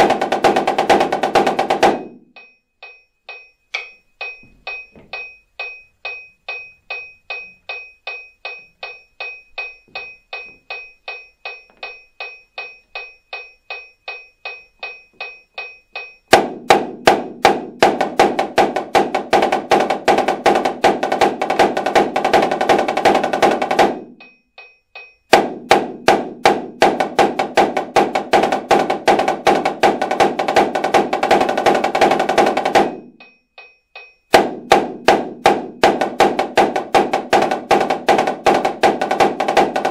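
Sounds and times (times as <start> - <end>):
snare drum paradiddles: 0.0 - 39.9
metronome clicking: 2.3 - 16.3.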